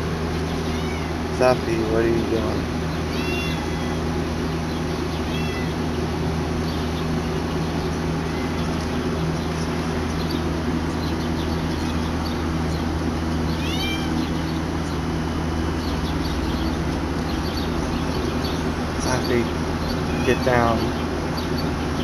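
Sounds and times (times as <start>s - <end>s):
steady low hum: 0.0s - 22.0s
cat meowing: 0.6s - 1.2s, 3.1s - 4.0s, 5.3s - 5.8s, 8.2s - 8.7s, 13.5s - 14.3s.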